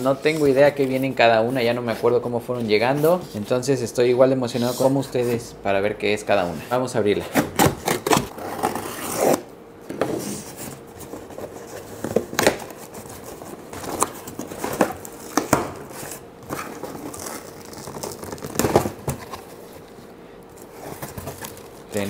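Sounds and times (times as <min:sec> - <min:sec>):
packaging crinkling: 0:12.4 - 0:22.0.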